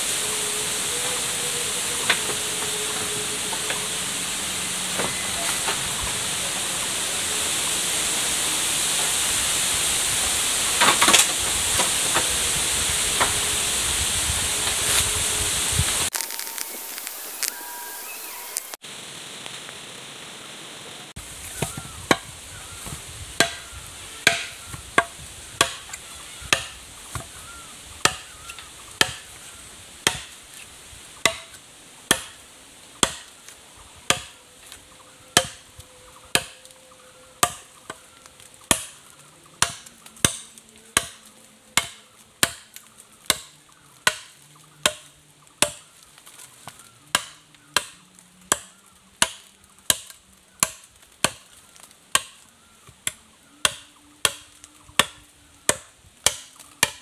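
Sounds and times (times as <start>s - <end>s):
machete chopping bamboo: 10.8s - 12.2s, 23.4s - 23.6s, 24.2s - 25.9s, 26.5s - 27.3s, 28.0s - 28.4s, 29.0s - 29.3s, 30.0s - 30.4s, 31.2s - 32.4s, 33.0s - 33.3s, 34.1s - 34.4s, 35.4s - 35.7s, 36.3s - 36.7s, 37.4s - 37.7s, 38.7s - 39.0s, 39.6s - 45.9s, 46.6s - 51.5s, 52.1s - 57.0s.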